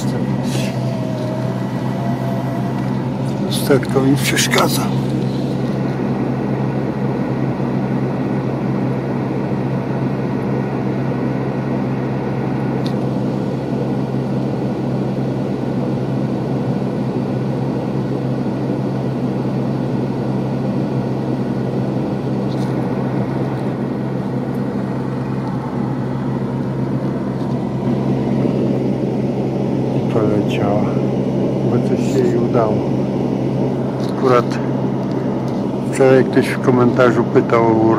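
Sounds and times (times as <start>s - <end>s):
car engine idling: 0.0s - 6.4s.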